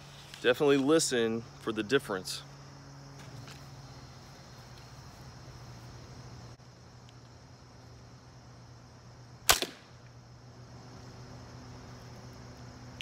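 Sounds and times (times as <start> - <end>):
crossbow firing: 9.4 - 10.0.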